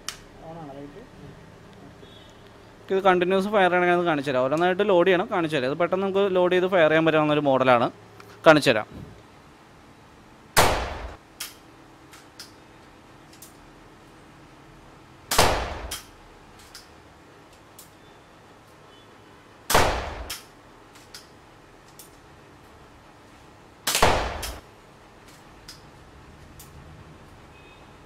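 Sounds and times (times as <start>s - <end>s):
air pistol shots: 10.6s - 11.2s, 15.3s - 16.1s, 19.7s - 20.5s, 23.8s - 24.6s.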